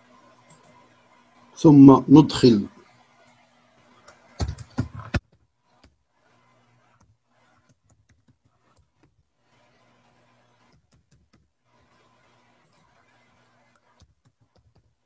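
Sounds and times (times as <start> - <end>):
computer keyboard typing: 4.1 - 6.0, 7.0 - 9.2, 10.6 - 11.9, 13.7 - 15.0.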